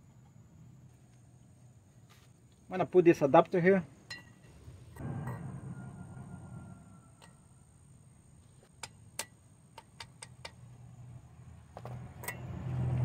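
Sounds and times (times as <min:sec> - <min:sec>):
light metallic clicks and clinks: 0:04.0 - 0:04.6
low hum: 0:04.1 - 0:08.5.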